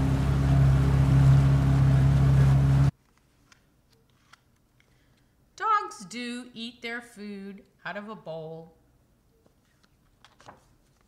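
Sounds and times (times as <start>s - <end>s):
boat motor humming: 0.0s - 2.9s.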